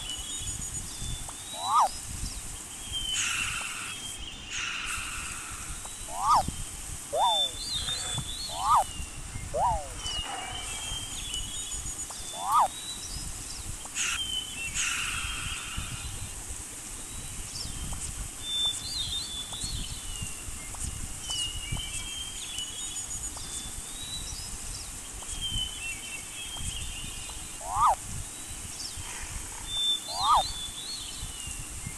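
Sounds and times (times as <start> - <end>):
birds chirping: 0.0 - 31.8
up-and-down bird call: 1.5 - 1.9, 6.1 - 6.5, 7.1 - 8.9, 9.5 - 11.1, 12.2 - 12.7, 27.6 - 28.0, 29.8 - 30.6.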